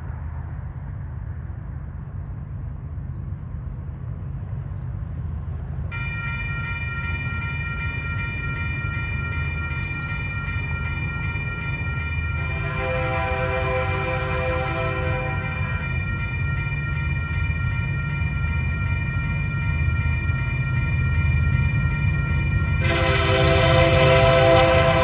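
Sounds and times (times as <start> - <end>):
diesel locomotive rumble: 0.0 - 25.0
locomotive air horn: 12.4 - 15.7, 22.8 - 25.0.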